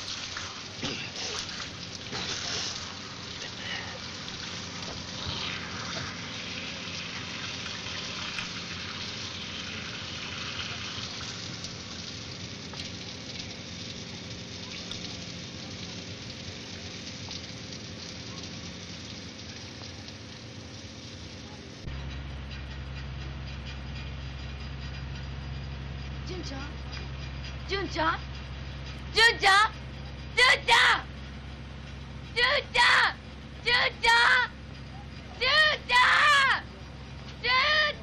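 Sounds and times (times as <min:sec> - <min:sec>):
fire hose spraying water: 0:00.0 - 0:21.9
low steady hum: 0:00.0 - 0:38.0.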